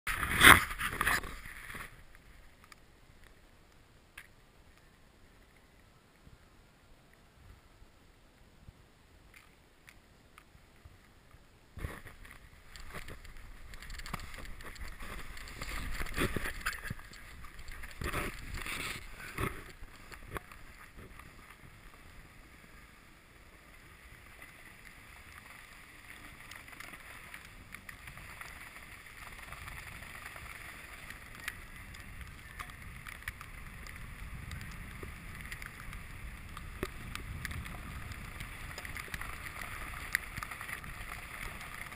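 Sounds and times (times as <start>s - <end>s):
board scraping over snow: 0.1s - 2.6s, 11.8s - 41.9s.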